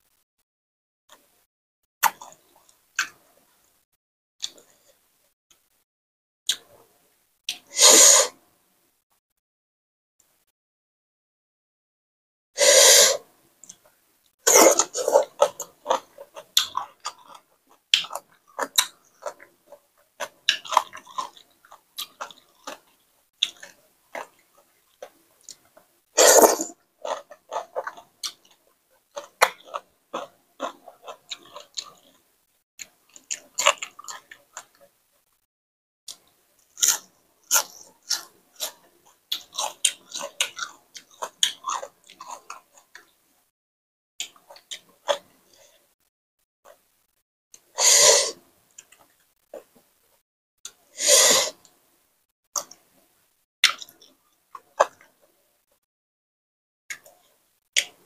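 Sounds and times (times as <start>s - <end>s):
wet chewing and lip-smacking: 14.7s - 25.7s, 27.0s - 32.2s, 36.1s - 43.1s.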